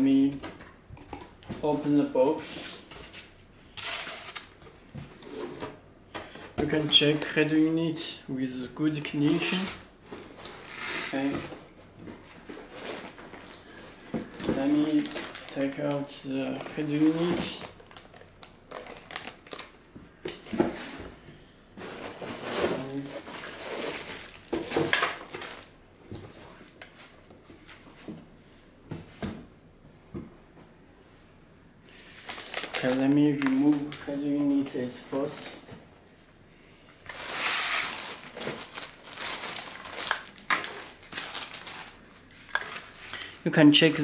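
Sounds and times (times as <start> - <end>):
plastic wrapping crinkling: 14.4 - 19.8, 23.0 - 25.8, 32.2 - 34.2, 37.0 - 44.0.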